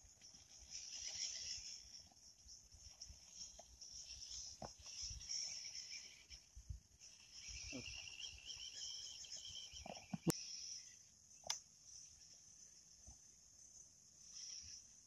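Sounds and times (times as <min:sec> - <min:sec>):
insects chirring: 0:00.0 - 0:15.0
low buzzing insect chorus: 0:00.0 - 0:15.0
sharp click: 0:11.4 - 0:11.6.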